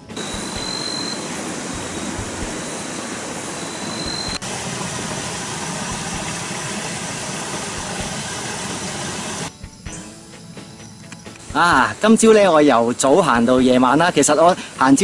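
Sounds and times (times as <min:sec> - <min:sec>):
thin high whine: 0:00.0 - 0:12.0
stream running over rocks: 0:00.2 - 0:09.5.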